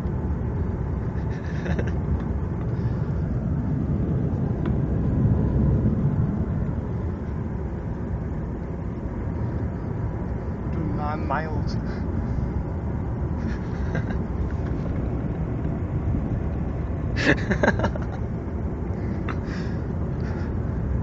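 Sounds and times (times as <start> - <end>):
car road and engine rumble: 0.0 - 21.0.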